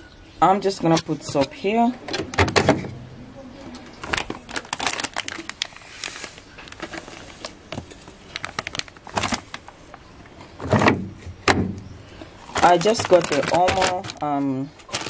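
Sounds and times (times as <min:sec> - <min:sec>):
powder packet rustling: 0:04.0 - 0:10.0, 0:12.4 - 0:15.0.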